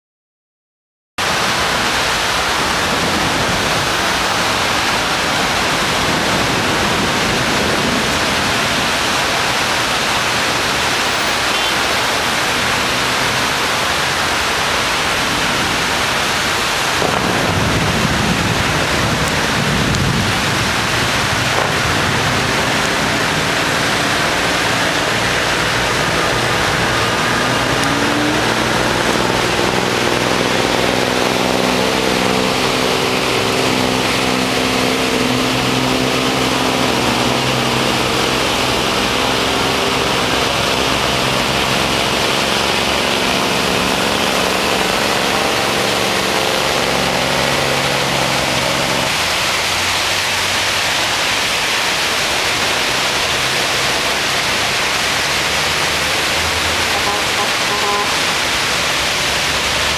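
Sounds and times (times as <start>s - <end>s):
heavy rain pouring: 1.2s - 59.9s
faint traffic engines: 1.3s - 59.9s
low thunder rumble: 17.0s - 33.9s.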